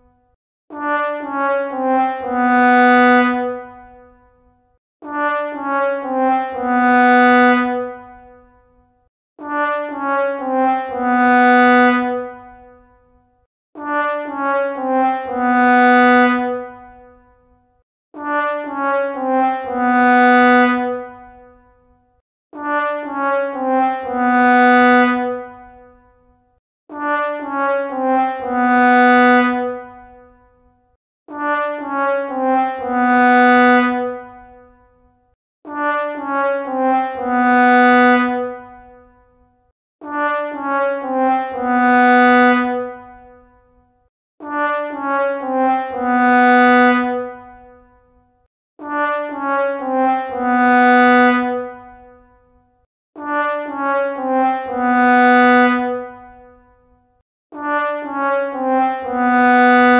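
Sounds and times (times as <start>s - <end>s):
sad trombone brass cue: 22.6s - 24.1s, 27.0s - 28.4s, 31.4s - 32.9s, 35.8s - 37.2s, 58.6s - 59.9s.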